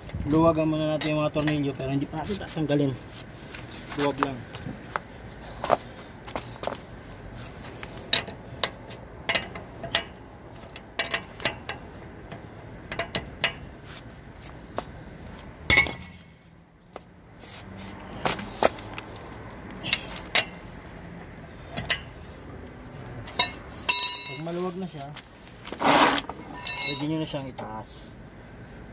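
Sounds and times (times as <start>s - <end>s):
wrench clinking on lug nuts: 8.1s - 13.7s, 15.7s - 16.3s, 23.2s - 24.6s, 25.9s - 27.3s.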